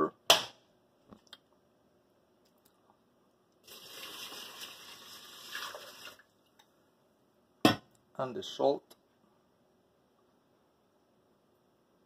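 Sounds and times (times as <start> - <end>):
water pouring into a pot: 3.6 - 6.4.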